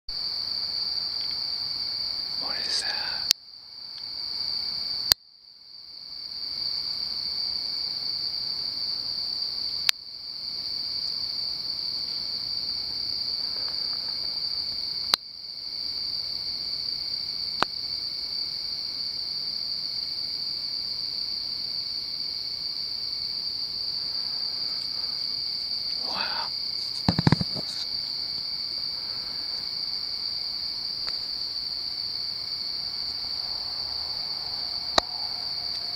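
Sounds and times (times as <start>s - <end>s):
crickets chirring: 0.1s - 35.9s
low knock: 27.1s - 27.7s.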